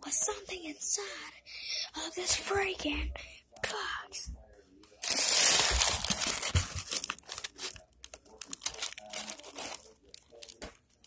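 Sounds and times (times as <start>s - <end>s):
crinkling and rustling: 4.9s - 11.0s.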